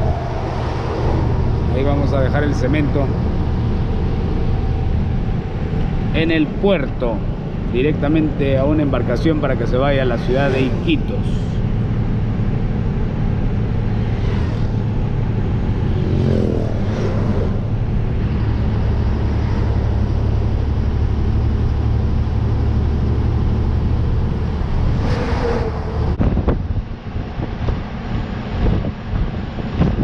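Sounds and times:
wind noise on microphone: 0.0 - 6.2, 24.0 - 30.0
truck engine droning: 0.0 - 30.0
vehicles passing: 0.0 - 30.0.

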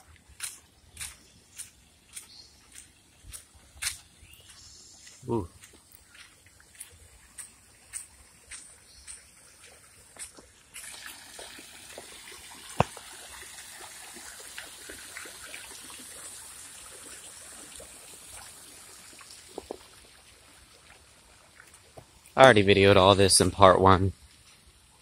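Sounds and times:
footsteps on garden path: 0.0 - 15.3, 18.9 - 23.2
fountain water splashing: 6.2 - 25.0.

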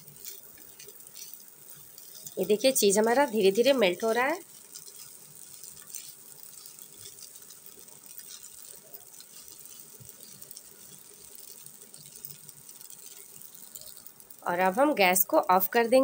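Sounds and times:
pasta clicking against pan: 0.0 - 16.0
spatula scraping pan: 0.2 - 12.1.

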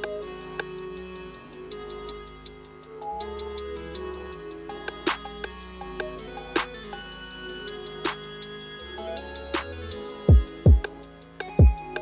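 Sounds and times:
instrumental music with beat: 0.0 - 12.0.

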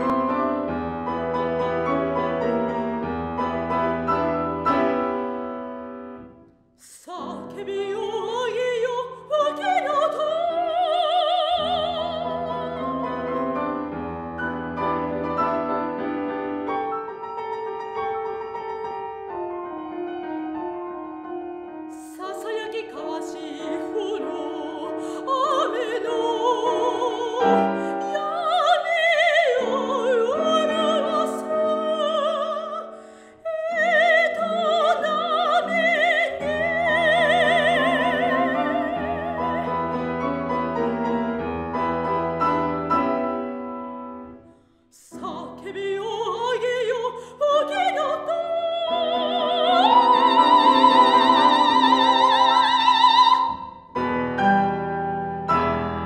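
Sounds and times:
piano accompaniment: 0.0 - 56.0
soprano singing with vibrato: 6.8 - 13.6, 21.9 - 40.1, 44.9 - 53.8.

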